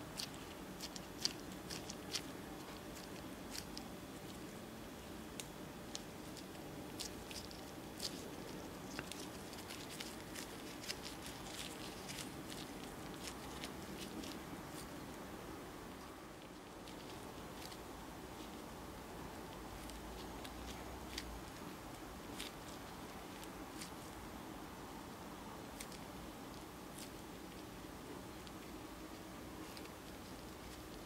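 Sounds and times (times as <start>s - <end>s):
sticky dough squishing: 0.0s - 31.0s.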